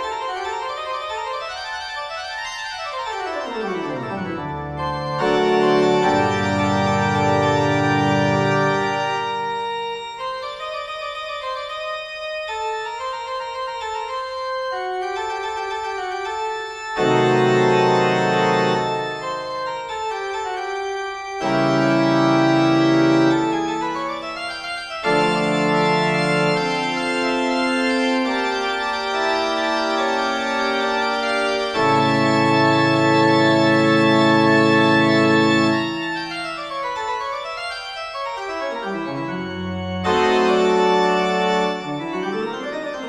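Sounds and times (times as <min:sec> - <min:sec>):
organ chords: 0:00.0 - 0:43.0.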